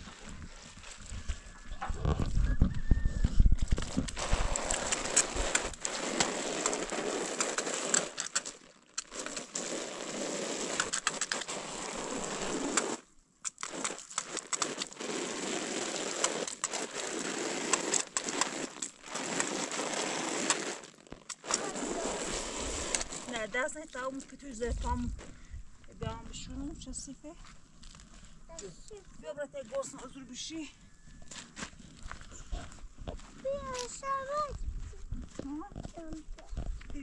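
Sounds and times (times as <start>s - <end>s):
hand tools scraping and rustling: 3.7s - 25.4s.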